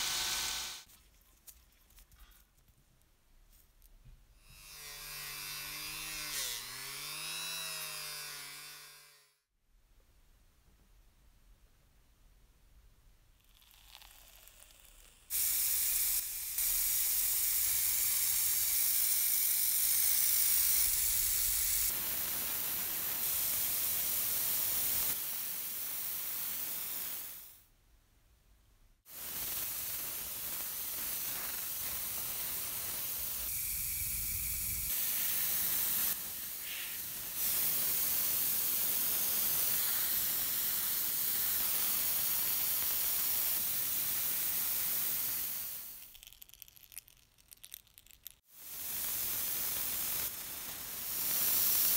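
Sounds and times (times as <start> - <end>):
airbrush hissing: 0.0 - 0.9, 13.6 - 27.6, 29.1 - 46.6, 48.2 - 51.9.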